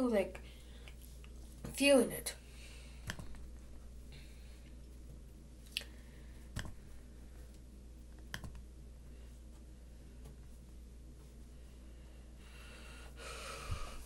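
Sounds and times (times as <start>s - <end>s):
faint low hum: 0.0s - 14.0s
computer mouse clicking: 3.0s - 3.4s, 6.5s - 6.8s, 8.2s - 8.6s.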